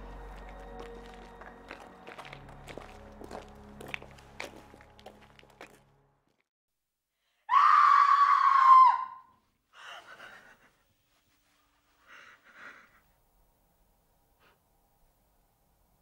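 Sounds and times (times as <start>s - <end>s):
woman screaming: 7.5s - 9.3s.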